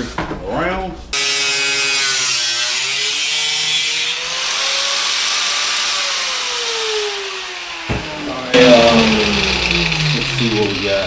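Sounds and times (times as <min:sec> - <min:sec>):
grinder motor whine: 0:05.6 - 0:11.0.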